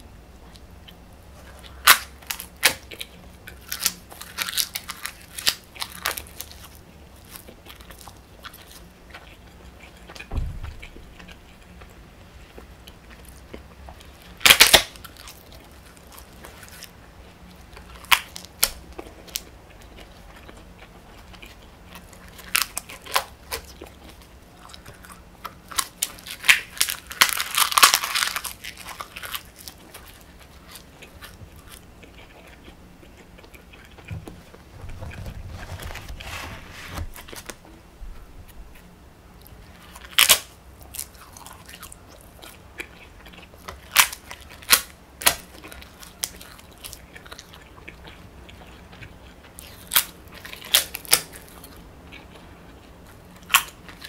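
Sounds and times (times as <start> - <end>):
crunchy chewing of paper: 0.0 - 54.0
dull low thump: 10.3 - 11.0.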